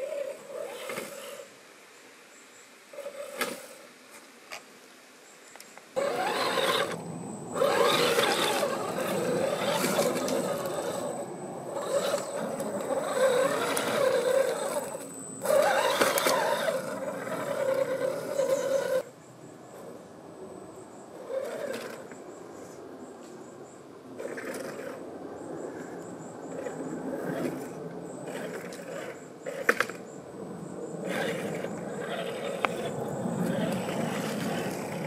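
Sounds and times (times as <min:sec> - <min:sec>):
rc car motor whining: 0:00.0 - 0:01.5, 0:06.0 - 0:19.1, 0:21.1 - 0:22.2, 0:24.2 - 0:25.0, 0:26.5 - 0:30.0, 0:31.0 - 0:35.0.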